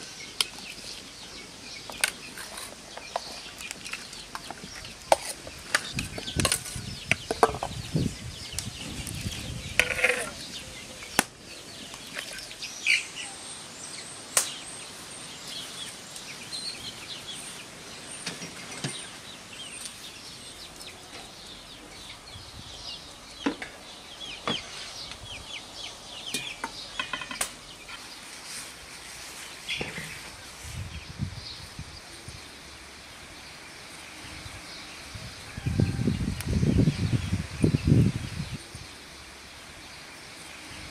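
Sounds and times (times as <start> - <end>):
kitchenware clinking and knocking: 26.4 - 27.5.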